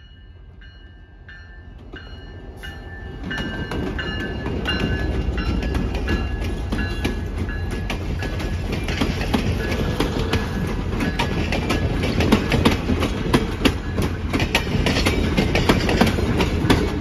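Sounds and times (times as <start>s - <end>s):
crossing bell ringing: 0.0s - 16.7s
diesel locomotive passing: 0.0s - 17.0s.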